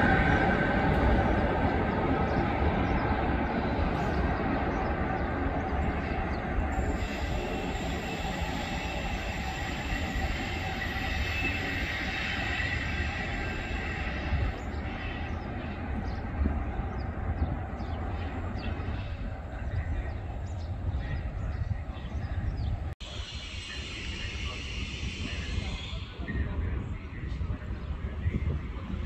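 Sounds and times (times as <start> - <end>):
train wheels rumbling on track: 0.0 - 29.0
thin high squealing: 6.7 - 15.4.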